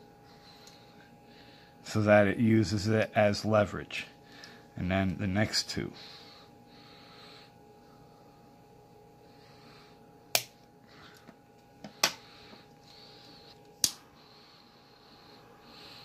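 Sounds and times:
torch lighter igniter clicking: 10.3 - 10.6, 13.8 - 14.0.

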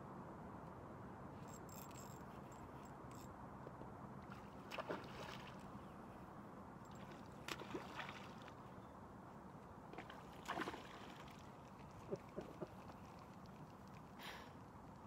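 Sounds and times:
fish splashing in water: 7.0 - 8.6, 10.0 - 14.3.

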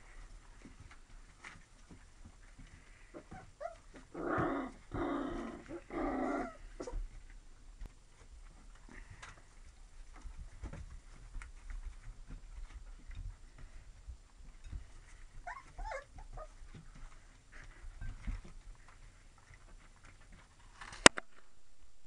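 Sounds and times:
puppies shuffling and bumping: 0.0 - 20.9
puppies whimpering and squeaking: 3.2 - 4.1, 15.0 - 18.5.

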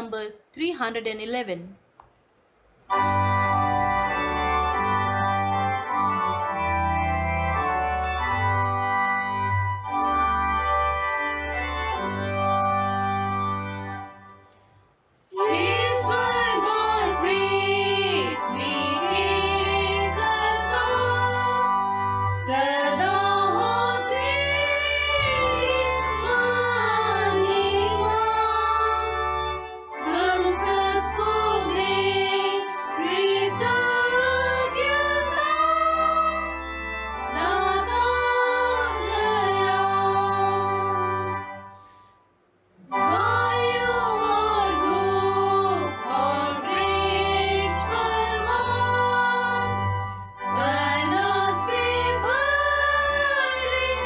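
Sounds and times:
organ playing held chords: 2.9 - 14.6, 15.3 - 42.1, 42.8 - 54.0
person singing with vibrato: 15.4 - 29.2, 37.3 - 41.9, 42.8 - 49.9.

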